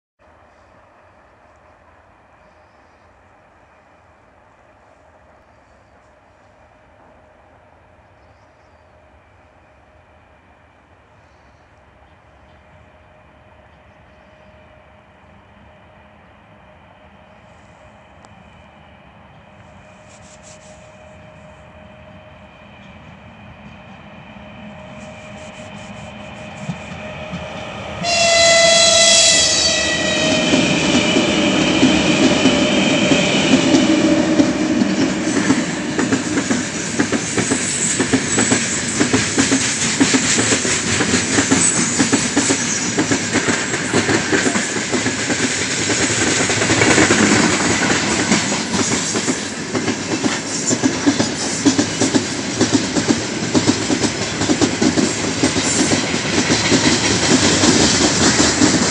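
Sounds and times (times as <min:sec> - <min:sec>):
freight train rumbling past: 0:00.2 - 0:58.9
locomotive horn blast: 0:28.0 - 0:31.1
wheels clacking over rail joints: 0:30.9 - 0:58.9.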